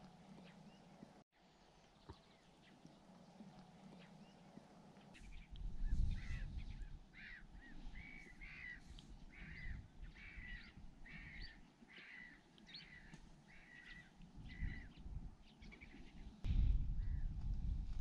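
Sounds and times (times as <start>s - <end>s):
wind rumble on microphone: 5.2s - 11.6s, 13.8s - 18.0s
bird harsh calls: 5.2s - 14.9s.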